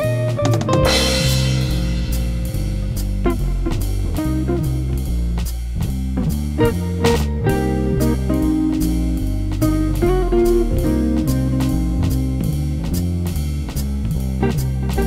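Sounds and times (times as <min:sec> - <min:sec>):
blues-rock band music: 0:00.0 - 0:15.0
cymbal crash: 0:00.8 - 0:04.2.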